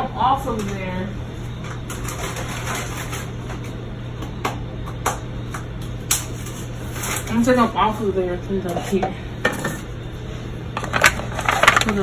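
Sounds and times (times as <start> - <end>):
steady low hum: 0.0 - 12.0
kitchen utensils clicking: 10.8 - 12.0.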